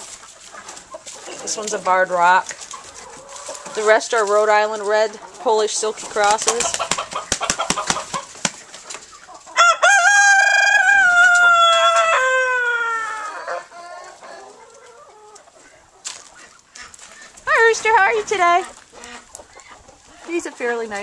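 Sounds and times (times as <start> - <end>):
chicken clucking: 0.0 - 21.0
rooster crowing: 9.6 - 14.5.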